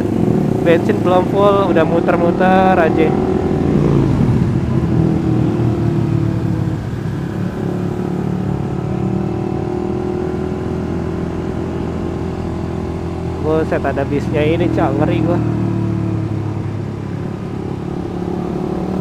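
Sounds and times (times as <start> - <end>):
motorcycle engine at low speed: 0.0 - 19.0.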